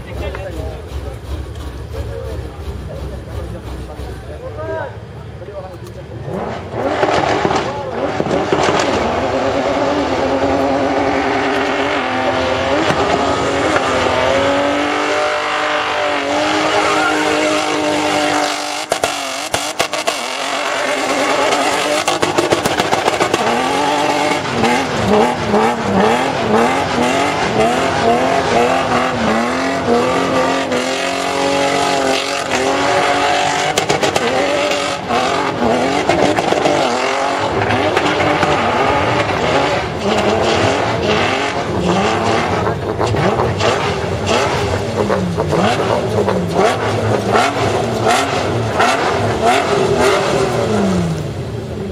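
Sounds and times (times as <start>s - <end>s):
engine revving hard: 6.2s - 51.2s
tyre squeal: 15.6s - 18.7s.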